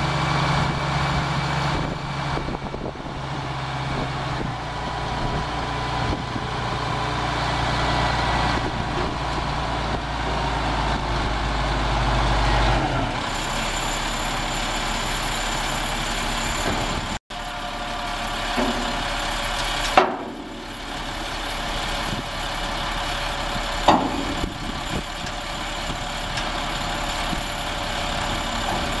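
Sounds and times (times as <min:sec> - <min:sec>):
diesel truck engine droning: 0:00.0 - 0:29.0
dump bed knocking: 0:18.3 - 0:21.3, 0:23.6 - 0:26.6.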